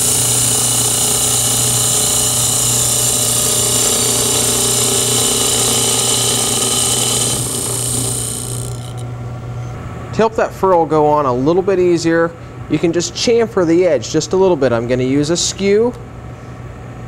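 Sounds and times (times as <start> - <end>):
hiss of tool cutting wood: 0.0 - 9.0
lathe motor hum: 0.0 - 9.1.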